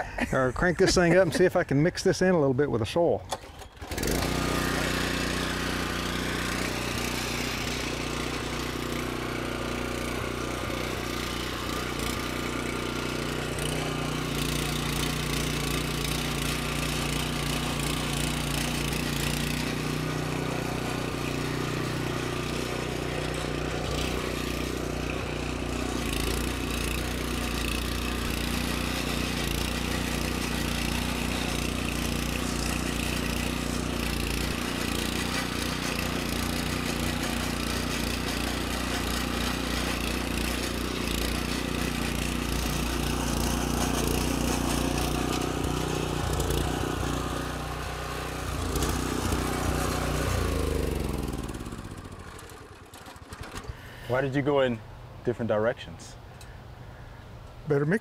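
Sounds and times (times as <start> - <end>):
garden tiller engine running: 0.0 - 58.0.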